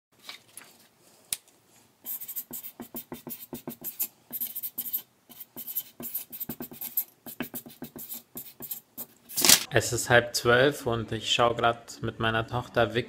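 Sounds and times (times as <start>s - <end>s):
marker writing on paper: 2.1s - 9.2s.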